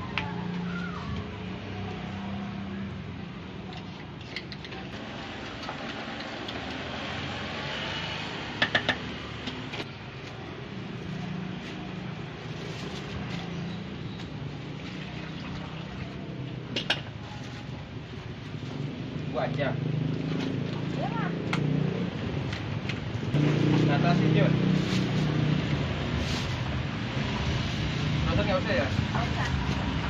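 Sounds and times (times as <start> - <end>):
plastic bags and cups handled: 8.8 - 19.0, 24.7 - 26.9.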